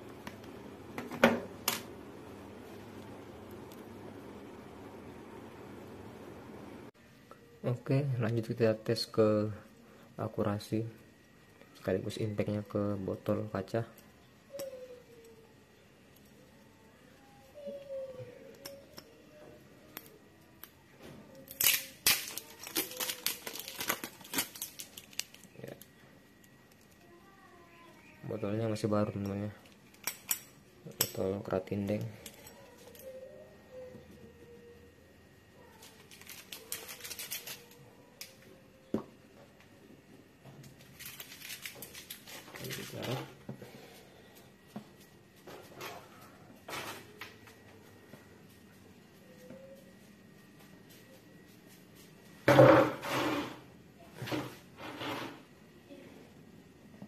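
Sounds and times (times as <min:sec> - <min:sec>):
label crackling as torn: 0:21.4 - 0:25.9, 0:35.8 - 0:38.4, 0:40.7 - 0:43.2
rustling handling noises: 0:21.4 - 0:27.0, 0:35.7 - 0:38.3, 0:40.5 - 0:52.4.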